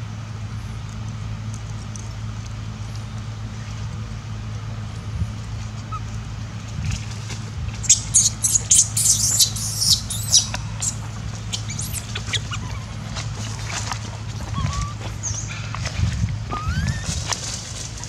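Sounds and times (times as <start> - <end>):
low hum: 0.0 - 18.0
baby monkey squealing: 5.8 - 6.1, 7.8 - 13.8, 14.4 - 15.5, 16.5 - 18.0.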